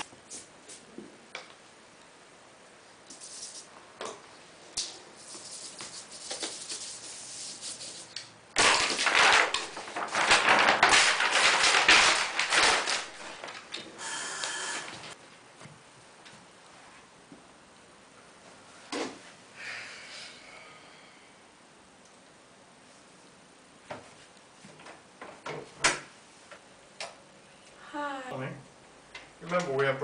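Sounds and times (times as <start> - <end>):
paper sheet rustling and crackling: 7.9 - 14.0.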